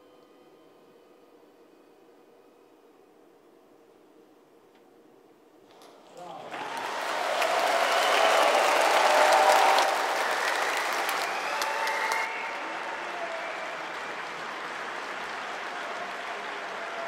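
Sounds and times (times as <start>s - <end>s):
audience applauding: 6.1s - 17.0s.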